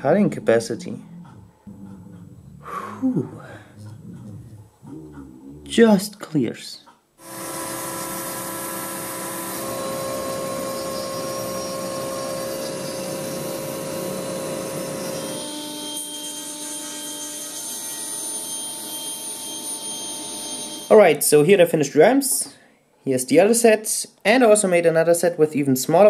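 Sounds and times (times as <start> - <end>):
router spindle milling wood: 7.2 - 16.2
table saw cutting wood: 7.2 - 20.9.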